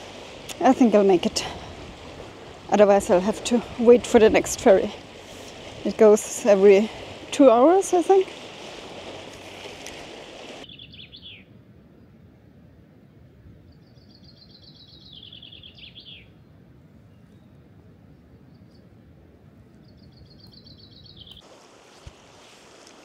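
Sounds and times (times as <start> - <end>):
songbird singing: 10.6 - 12.1, 13.6 - 21.5.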